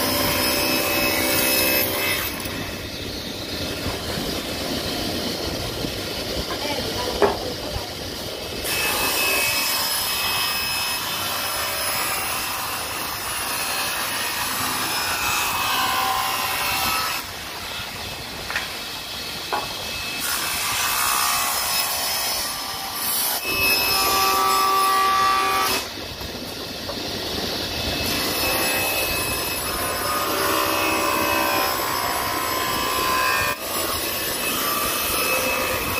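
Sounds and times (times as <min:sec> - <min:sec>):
table saw cutting wood: 0:00.0 - 0:08.0, 0:08.6 - 0:35.9.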